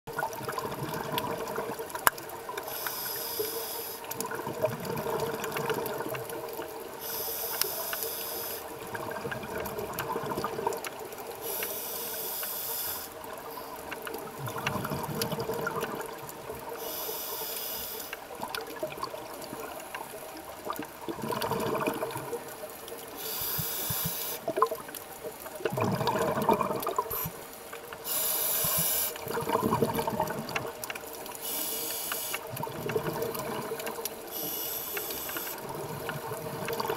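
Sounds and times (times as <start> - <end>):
bubbling exhaled air underwater: 0.1 - 2.7, 4.1 - 6.9, 8.7 - 11.0, 13.2 - 16.8, 18.3 - 27.4, 28.0 - 31.3, 32.4 - 36.9
hissing regulator inhale: 2.7 - 4.1, 7.0 - 8.7, 11.4 - 13.8, 16.8 - 18.2, 23.1 - 24.4, 28.0 - 29.2, 31.4 - 32.4, 34.3 - 35.6.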